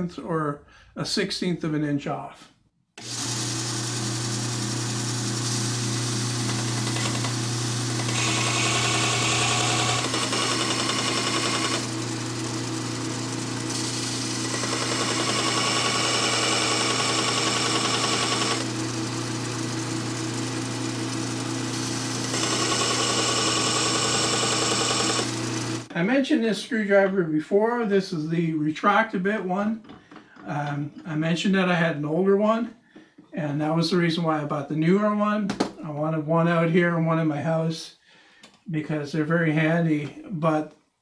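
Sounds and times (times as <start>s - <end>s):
belt sander motor hum: 3.0s - 25.9s.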